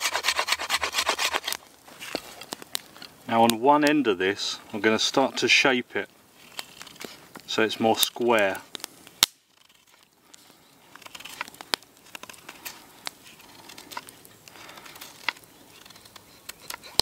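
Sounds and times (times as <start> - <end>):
knife rasping on wood: 0.0 - 1.6.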